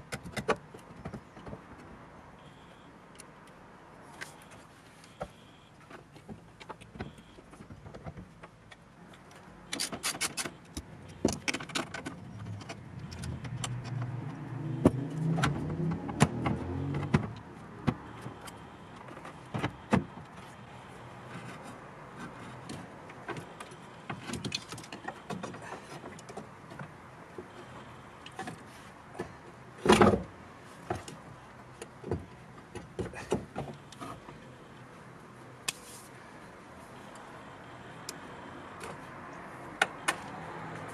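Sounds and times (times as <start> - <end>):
rubbing and handling noise: 35.6 - 36.4.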